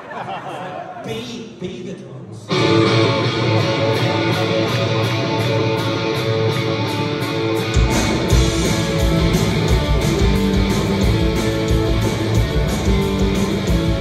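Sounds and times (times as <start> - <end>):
electric guitars strumming chords: 2.5 - 14.0
bass and drums: 2.8 - 14.0.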